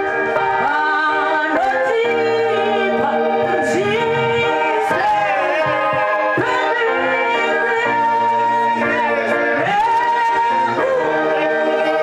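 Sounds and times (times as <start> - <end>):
backing singers: 0.0 - 12.0
woman singing lead: 0.0 - 12.0.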